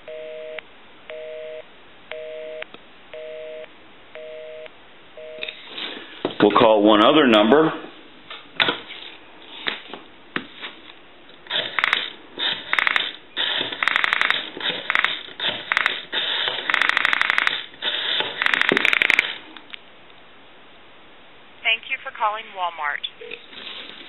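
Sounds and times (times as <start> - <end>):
rotary dial pulse clicks: 11.5 - 19.4.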